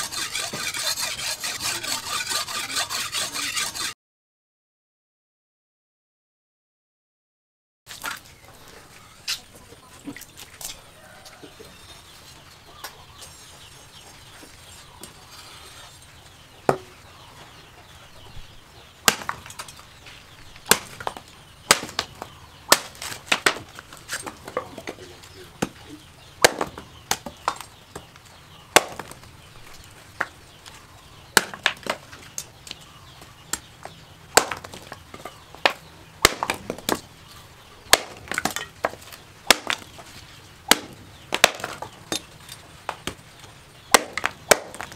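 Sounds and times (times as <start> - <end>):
wood splitting: 0.0 - 3.9, 19.0 - 19.8, 20.6 - 25.8, 26.4 - 27.7, 28.7 - 29.2, 31.3 - 32.1, 34.3 - 37.1, 37.9 - 43.2, 43.9 - 44.9.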